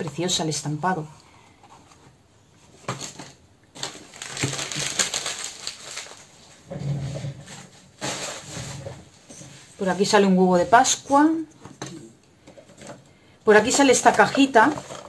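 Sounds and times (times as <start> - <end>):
packaging rustling: 1.7 - 6.7.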